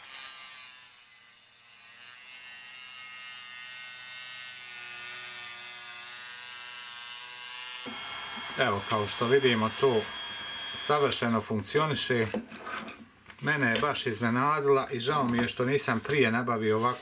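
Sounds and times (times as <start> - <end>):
mini drill cutting plastic: 0.0 - 11.4.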